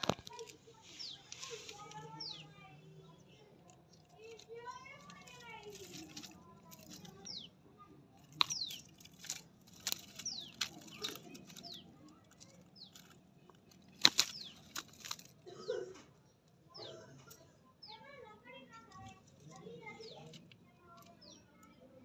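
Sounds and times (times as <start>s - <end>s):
clicks and rustles on microphone: 0.0s - 2.4s, 8.2s - 15.4s.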